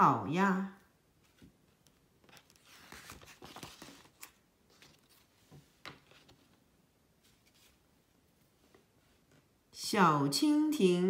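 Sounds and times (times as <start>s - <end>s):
paper page turning: 1.2s - 6.6s.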